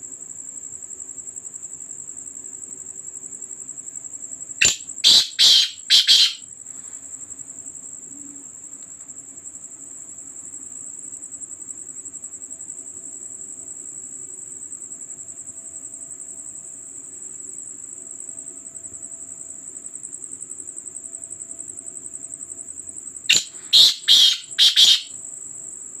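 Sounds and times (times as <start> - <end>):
crickets trilling: 0.0 - 26.0
francolin calling: 4.6 - 6.4, 23.3 - 25.1.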